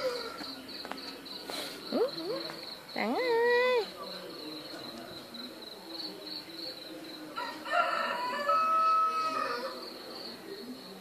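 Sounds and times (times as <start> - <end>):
rooster crowing: 7.4 - 9.8.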